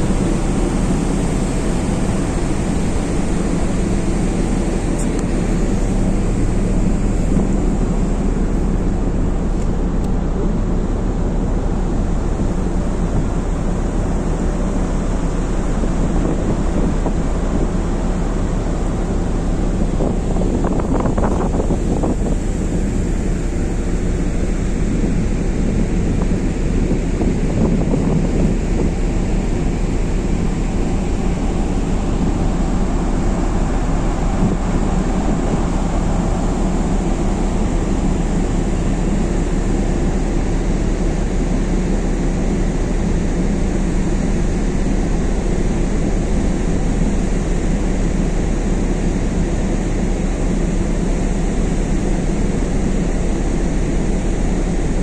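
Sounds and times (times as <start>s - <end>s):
wind buffeting microphone: 0.0s - 39.3s
ferry engine drone: 0.0s - 55.0s.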